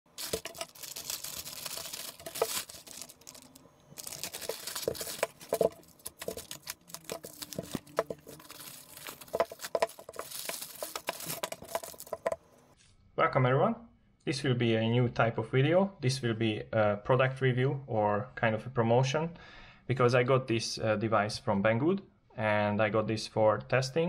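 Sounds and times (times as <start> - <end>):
wrapping crinkling and tearing: 0.1 - 12.4.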